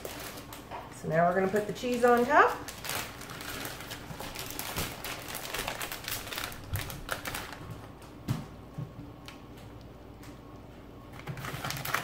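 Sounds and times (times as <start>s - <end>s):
plastic bag crinkling: 0.0s - 8.0s, 11.2s - 12.0s.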